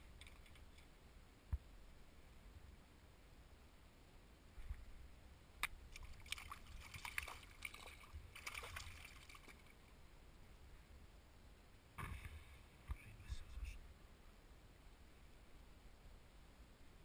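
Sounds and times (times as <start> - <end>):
splashing in shallow water: 5.9 - 9.9.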